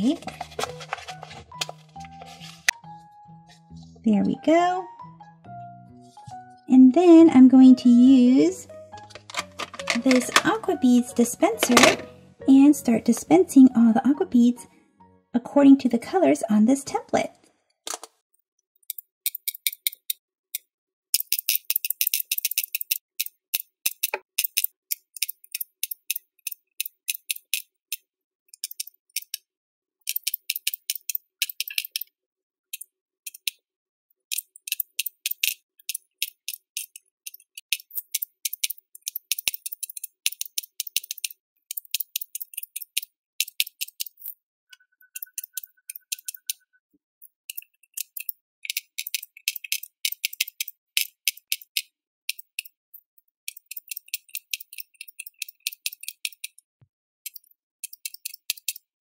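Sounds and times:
bead dispenser clicking: 9.0s - 10.6s.

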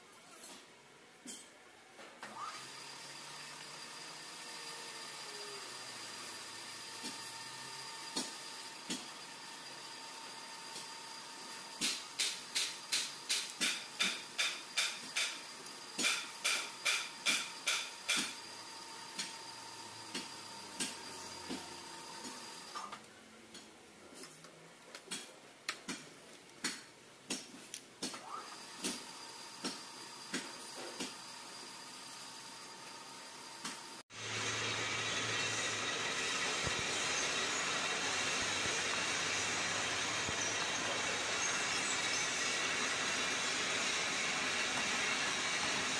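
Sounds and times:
faint high whine: 1.9s - 12.5s, 28.2s - 45.9s.

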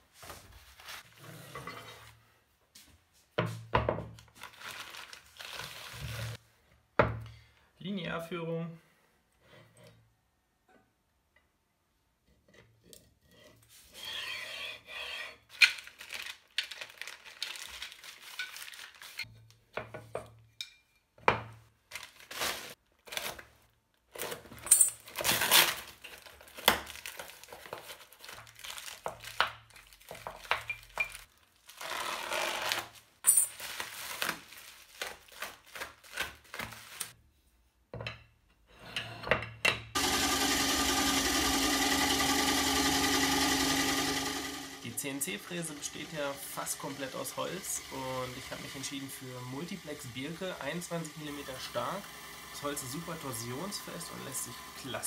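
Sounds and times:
parcels rubbing and rustling: 0.0s - 1.4s, 4.2s - 6.4s, 15.4s - 19.6s, 21.8s - 37.6s.

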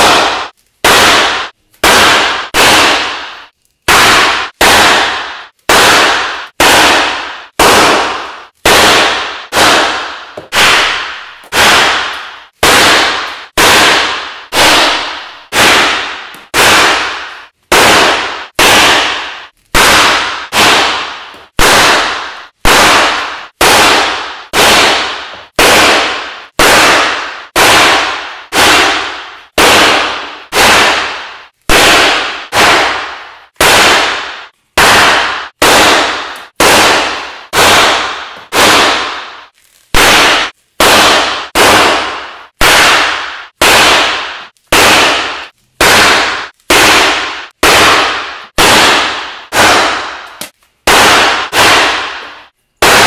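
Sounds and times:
confetti cannon bangs: 0.0s - 53.0s.

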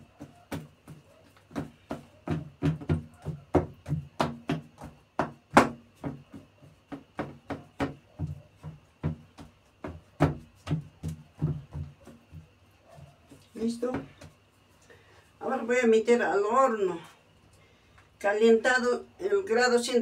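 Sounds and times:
fingertips tapping dough in tray: 0.0s - 14.4s.

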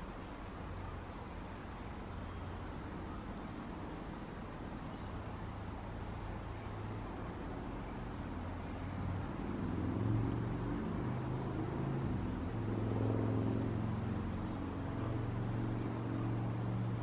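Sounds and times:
faint steady hiss: 0.0s - 17.0s
motor vehicle engine drone: 6.5s - 17.0s.

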